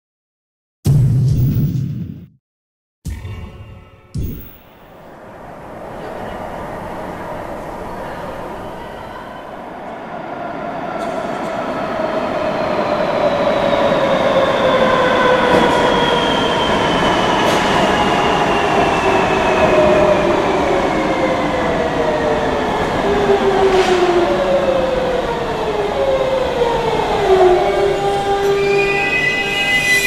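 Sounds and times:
electric train braking: 27.6s - 30.0s.

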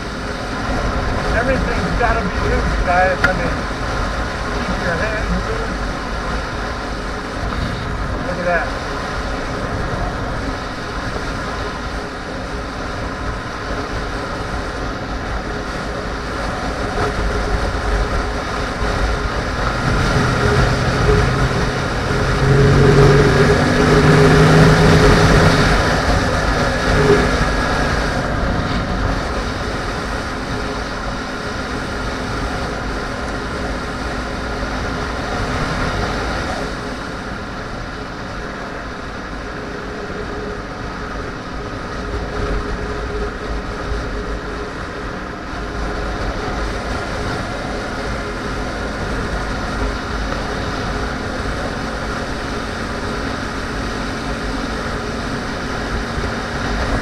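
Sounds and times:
wind rushing over microphone: 0.0s - 57.0s
motorcycle engine running: 9.0s - 39.3s.

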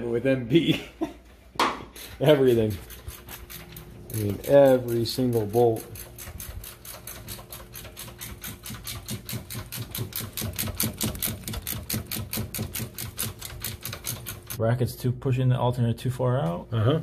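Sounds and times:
ratchet wrench clicking: 2.9s - 14.6s.

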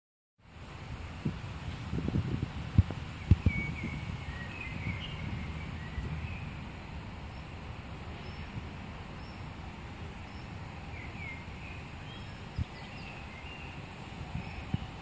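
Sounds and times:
low rumble: 1.7s - 9.4s
small birds chirping: 2.5s - 15.0s.

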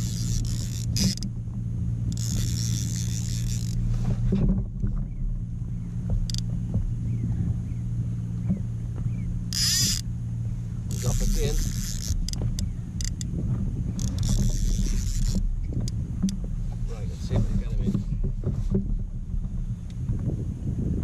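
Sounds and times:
microphone low hum and rumble: 0.0s - 21.0s
faint short squeaks: 9.1s - 10.0s.

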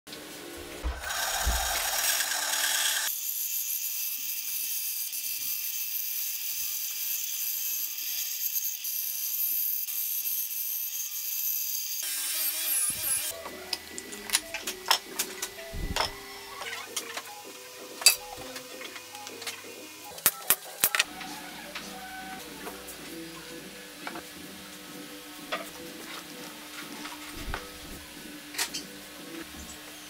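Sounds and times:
bandsaw cutting wood: 0.9s - 4.6s, 11.9s - 22.7s.

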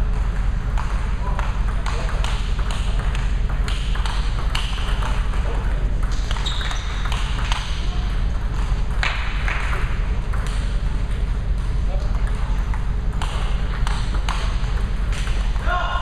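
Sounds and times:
low hall hum: 0.0s - 16.0s
table tennis ball clicking: 0.2s - 7.8s, 12.2s - 15.6s.

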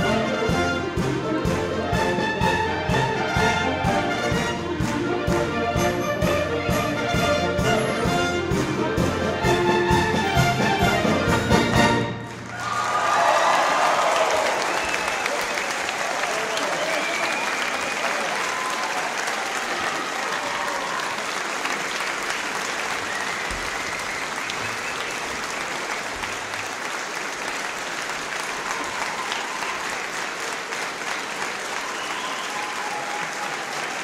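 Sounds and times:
audience applauding: 10.6s - 34.0s.

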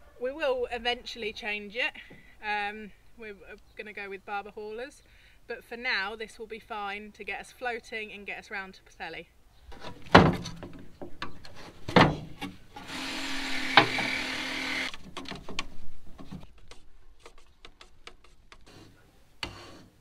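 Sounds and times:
small power tool running: 12.8s - 15.0s.

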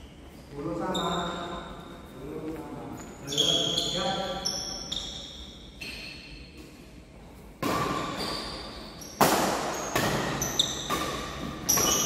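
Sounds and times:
badminton rackets hitting shuttlecock: 7.6s - 12.0s.

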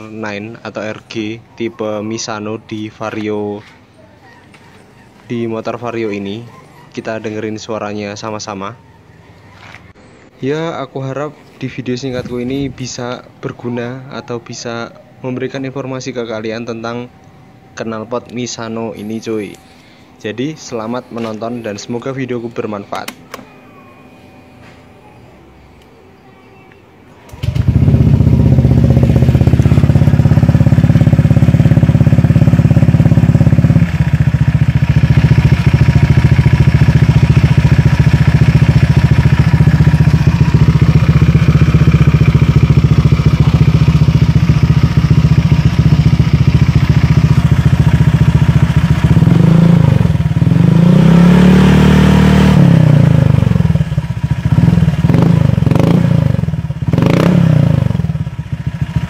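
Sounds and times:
scooter engine idling and revving: 27.3s - 59.0s.

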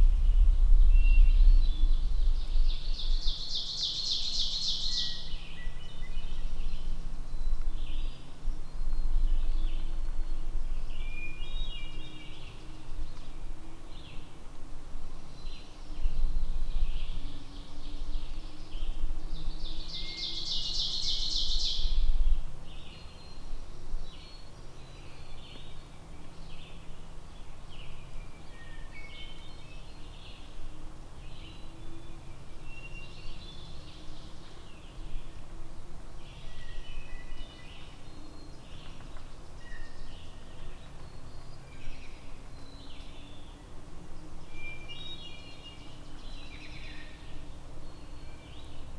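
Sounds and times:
low rumble: 0.0s - 3.7s
songbirds chirping: 0.0s - 48.9s.

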